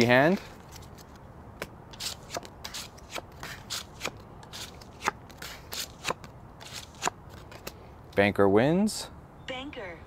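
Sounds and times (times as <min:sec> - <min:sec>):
playing cards snapping and sliding: 0:00.6 - 0:07.8.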